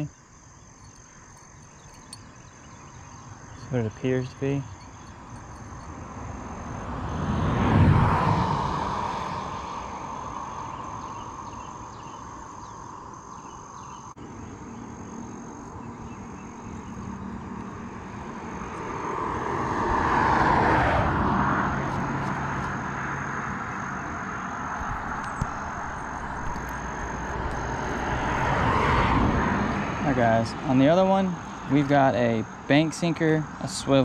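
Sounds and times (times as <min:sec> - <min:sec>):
vehicle passing on road: 0:00.7 - 0:34.0
vehicle approaching: 0:01.4 - 0:34.0.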